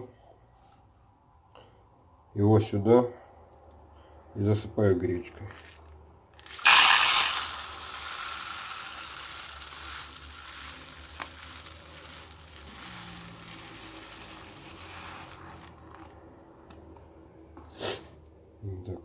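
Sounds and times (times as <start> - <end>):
grains pouring into paper cup: 5.4 - 16.3.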